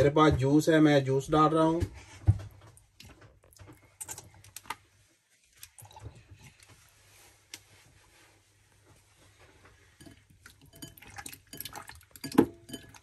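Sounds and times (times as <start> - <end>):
faint kitchen clicks and taps: 1.2 - 4.8, 8.8 - 13.0.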